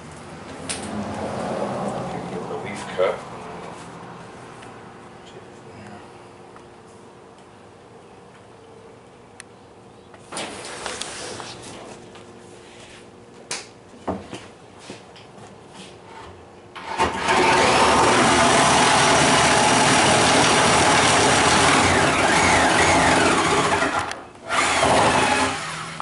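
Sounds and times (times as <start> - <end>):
woodworking power tool running: 16.8 - 26.0.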